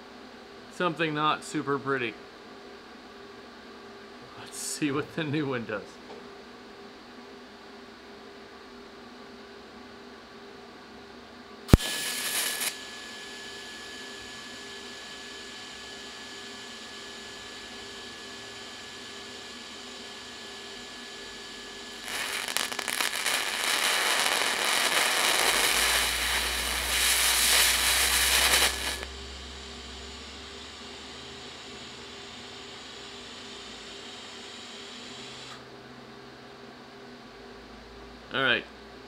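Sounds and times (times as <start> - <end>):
welding arc crackling and sputtering: 11.7 - 12.8, 21.6 - 29.9
welding arc striking click: 11.7 - 12.8, 22.0 - 29.2
welding arc whine: 11.7 - 35.6.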